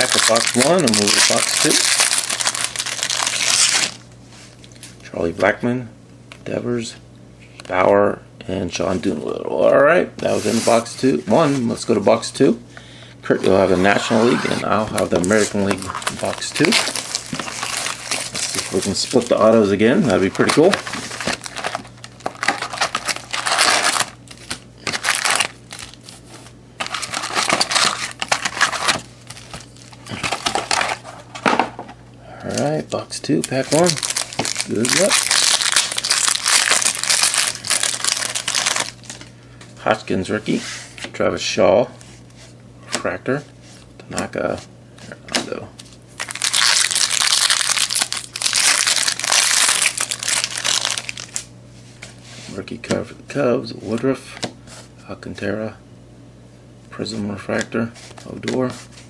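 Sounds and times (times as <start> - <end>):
foil packs crinkling: 0.0 - 4.0, 13.8 - 31.4, 32.5 - 39.3, 45.8 - 51.5.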